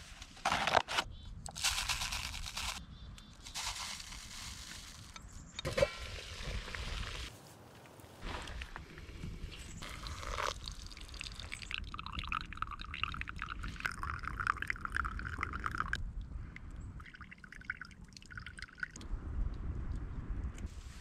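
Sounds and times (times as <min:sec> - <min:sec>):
coffee trickling into a cup: 0:09.8 - 0:16.0.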